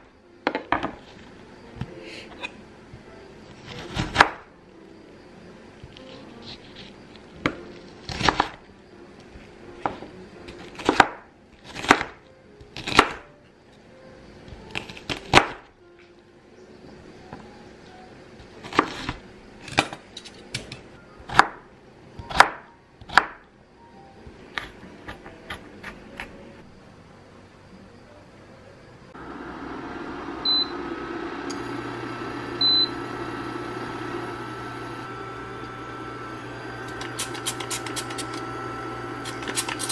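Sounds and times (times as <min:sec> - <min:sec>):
knife chopping on wooden board: 0:10.8 - 0:12.2, 0:21.3 - 0:21.6, 0:22.3 - 0:23.4.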